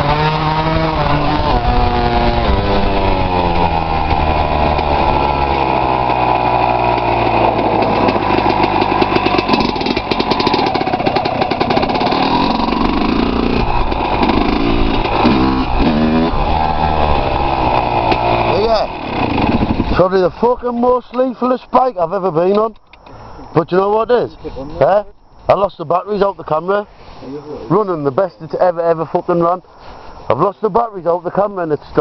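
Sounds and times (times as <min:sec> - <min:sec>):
dirt bike engine revving: 0:00.0 - 0:20.8.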